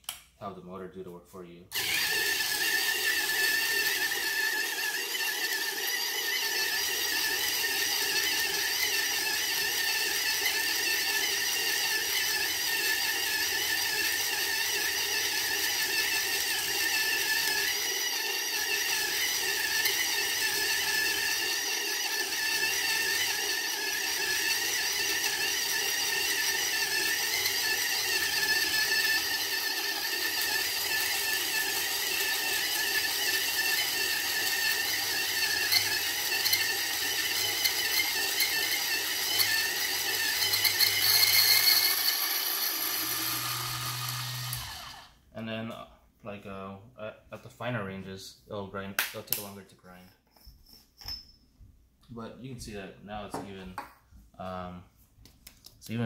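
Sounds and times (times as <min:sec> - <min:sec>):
electric coffee grinder grinding: 0:01.7 - 0:45.2.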